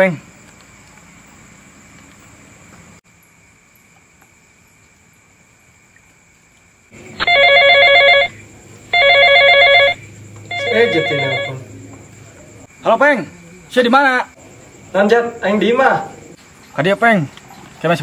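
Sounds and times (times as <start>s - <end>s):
melodic phone ringtone: 7.2s - 8.4s, 9.0s - 11.6s.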